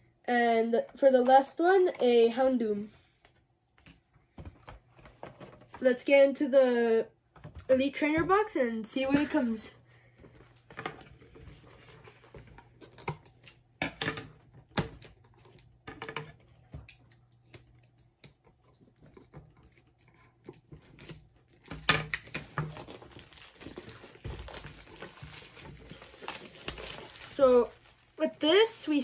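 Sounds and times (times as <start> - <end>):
plastic wrap crinkling: 10.2 - 29.0.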